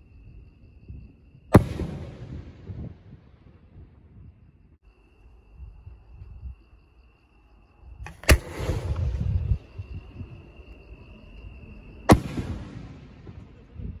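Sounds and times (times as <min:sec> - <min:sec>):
crickets trilling: 0:00.0 - 0:14.0
firework mortar launch report: 0:01.4 - 0:04.4, 0:08.0 - 0:10.4, 0:12.0 - 0:14.0.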